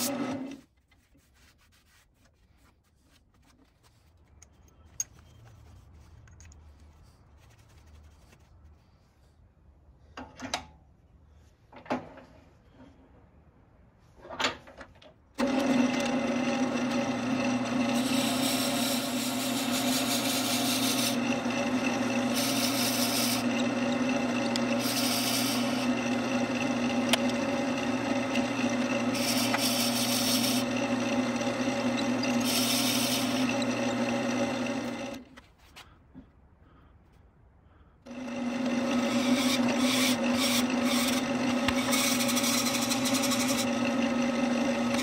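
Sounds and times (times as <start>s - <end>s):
wood lathe motor hum: 0.0s - 0.6s, 15.4s - 35.3s, 38.1s - 45.0s
drill bit hissing cutting wood: 16.9s - 35.2s, 38.1s - 45.0s.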